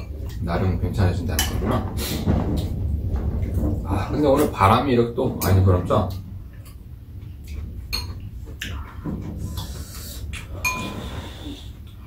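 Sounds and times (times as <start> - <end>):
low steady rumble: 0.0 - 12.0
spoons clinking against bowls: 10.4 - 11.1.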